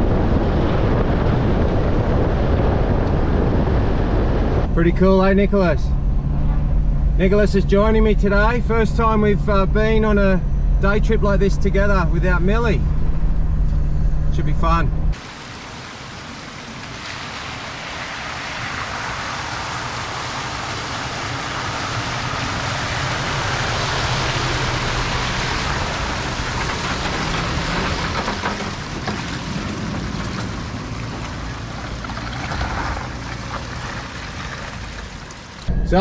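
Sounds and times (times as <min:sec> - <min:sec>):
diesel engine pulling a trailer: 0:00.0 - 0:36.0
water rushing from tyres: 0:15.2 - 0:35.7.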